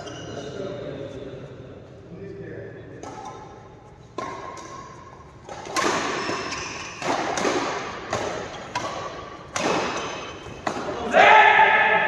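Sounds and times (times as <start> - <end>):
racket hitting shuttlecock: 3.0 - 11.2.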